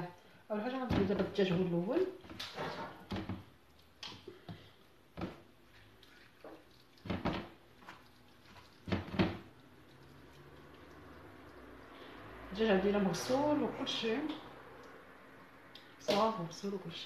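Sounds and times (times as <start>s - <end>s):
hands squelching raw chicken: 5.4s - 12.4s.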